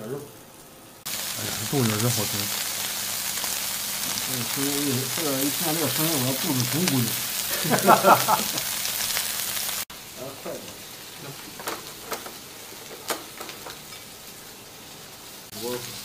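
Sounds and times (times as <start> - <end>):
meat sizzling on grill: 0.0 - 16.0
fat popping and crackling: 11.5 - 14.0.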